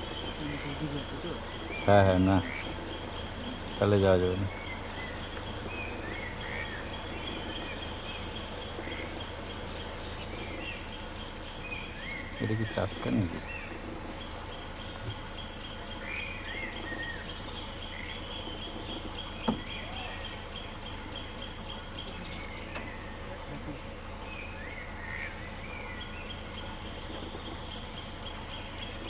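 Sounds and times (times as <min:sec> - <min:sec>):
crickets and insects chirring: 0:00.0 - 0:29.0.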